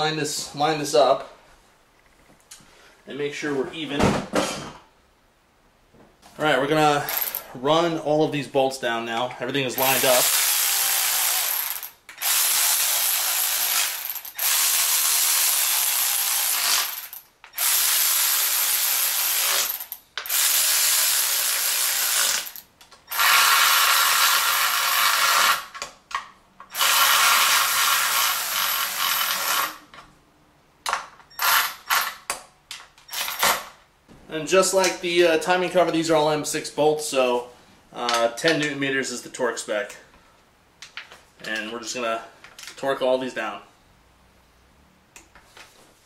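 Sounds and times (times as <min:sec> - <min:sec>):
cordless electric ratchet running: 0:09.8 - 0:25.7, 0:26.7 - 0:29.8.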